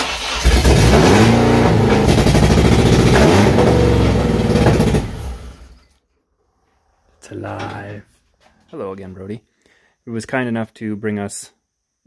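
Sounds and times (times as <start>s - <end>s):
car engine starting and revving: 0.0s - 5.8s.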